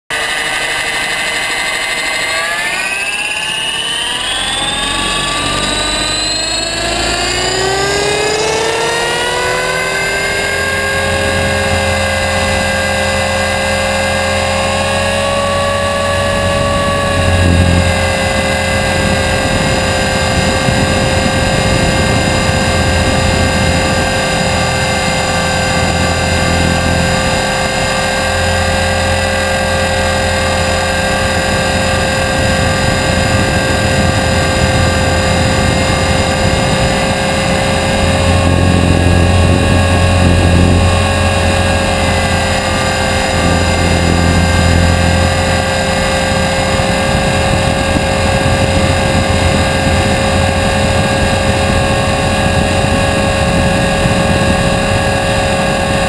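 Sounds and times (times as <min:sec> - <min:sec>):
rc helicopter motor whine: 0:00.1 - 0:56.0.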